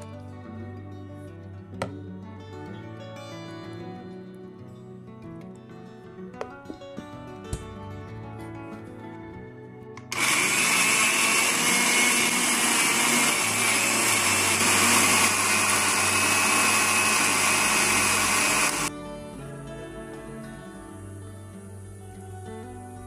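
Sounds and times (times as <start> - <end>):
electric blender grinding: 10.1 - 18.9.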